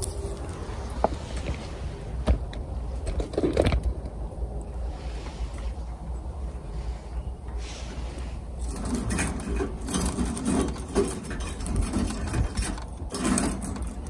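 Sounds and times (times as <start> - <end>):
fire crackling: 0.0 - 14.0
stove burning with low rumble: 0.0 - 14.0
puffs of burning pellets: 3.9 - 8.7.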